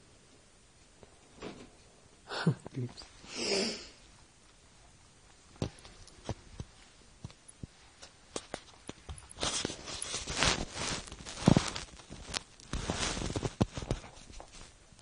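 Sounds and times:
small clicks and taps: 5.6 - 9.4
rabbits scuffling on fabric floor: 8.4 - 14.8.

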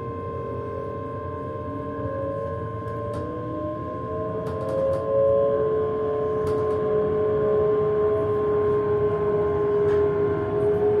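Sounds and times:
electric train motors whining: 0.0 - 11.0.

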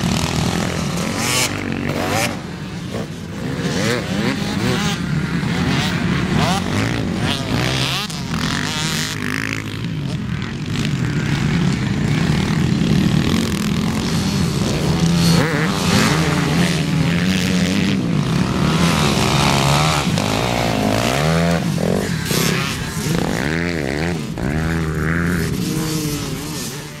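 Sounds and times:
motocross bikes revving: 0.0 - 27.0.

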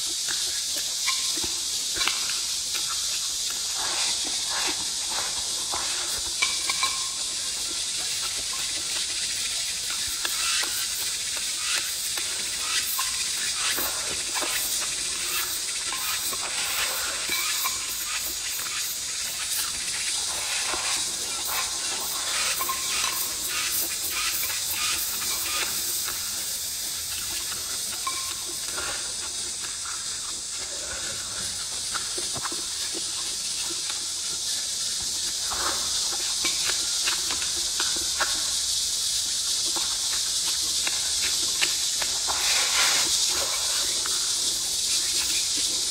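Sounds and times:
steady high-pitched hiss: 0.0 - 45.9
chewing and mouth clicks: 0.1 - 7.0.

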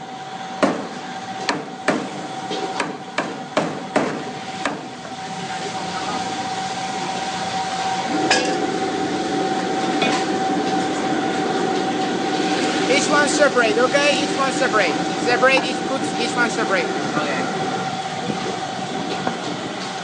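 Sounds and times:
cleaver chopping on a block: 2.8 - 4.8.

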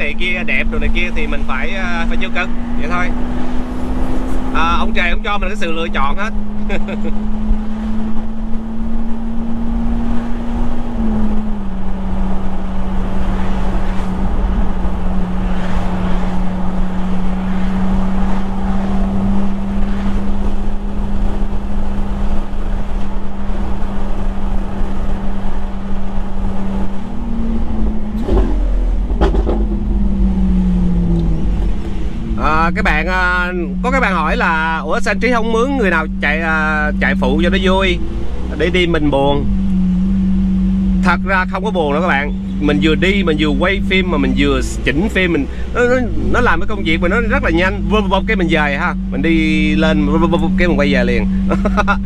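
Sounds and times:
road rumble: 0.0 - 52.0
vehicle engine droning: 0.0 - 52.0
short knocks: 28.2 - 30.0.

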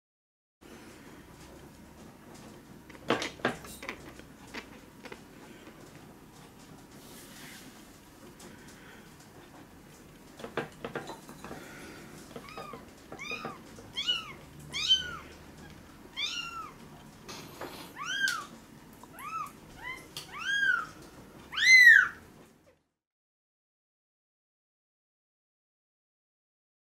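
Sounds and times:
kitten mewing: 16.1 - 18.5.

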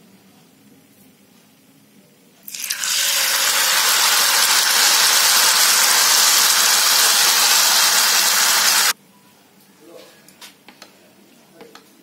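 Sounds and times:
batter sizzling in hot oil: 2.5 - 9.0.

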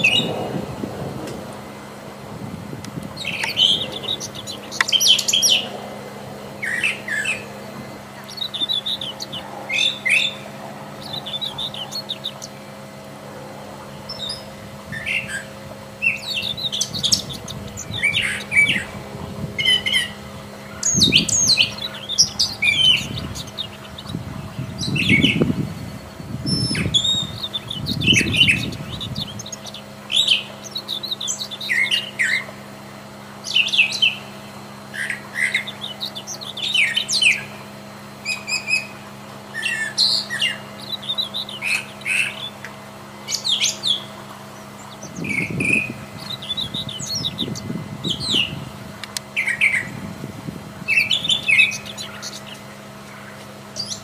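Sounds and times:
bird singing varied phrases: 0.0 - 0.8, 3.0 - 54.0
low rumble: 0.0 - 4.8.

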